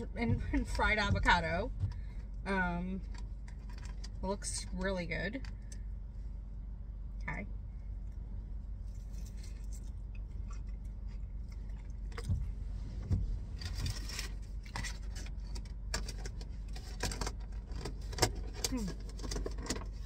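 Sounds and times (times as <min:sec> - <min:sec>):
steady low hum: 0:00.0 - 0:20.0
crunchy taco chewing: 0:08.0 - 0:12.6.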